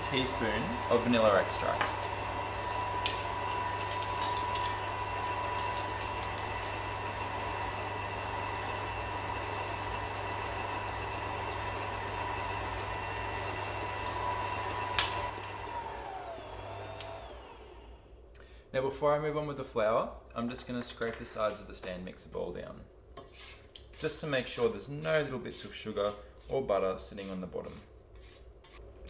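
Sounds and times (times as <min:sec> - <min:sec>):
stand mixer running: 0:00.0 - 0:18.0.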